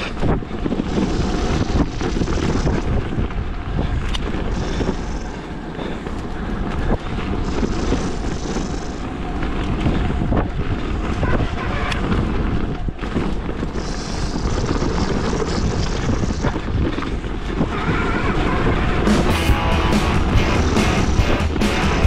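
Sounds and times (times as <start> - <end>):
bike tyres rolling on gravel: 0.0 - 22.0
wind buffeting microphone: 0.0 - 22.0.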